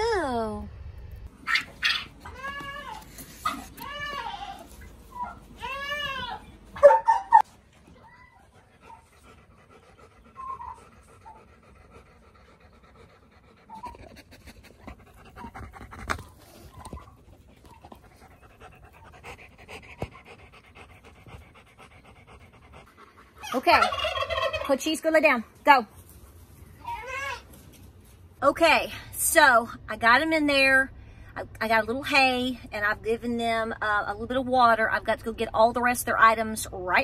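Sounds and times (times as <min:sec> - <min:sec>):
dog panting: 0:07.8 - 0:23.8.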